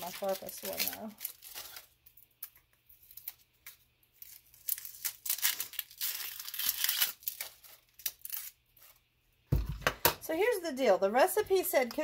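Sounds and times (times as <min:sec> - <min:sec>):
onion skin crackling and tearing: 0:00.0 - 0:09.0.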